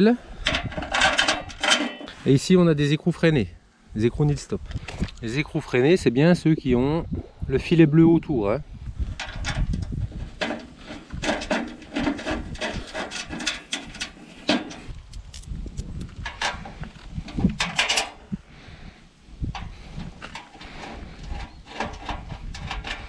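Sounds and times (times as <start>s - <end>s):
metallic clicks and rattles: 0.4s - 2.2s, 9.2s - 16.7s, 17.3s - 18.2s.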